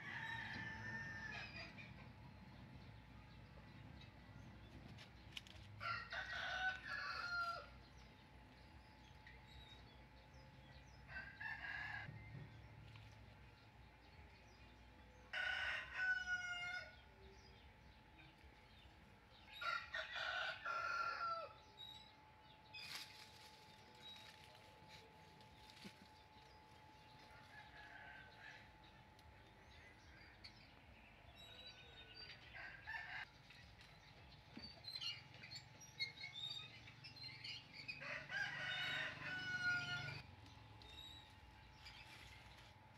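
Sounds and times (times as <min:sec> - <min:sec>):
rooster crowing: 0:00.0 - 0:01.7, 0:05.8 - 0:07.8, 0:15.3 - 0:16.9, 0:19.6 - 0:21.6, 0:38.0 - 0:40.2.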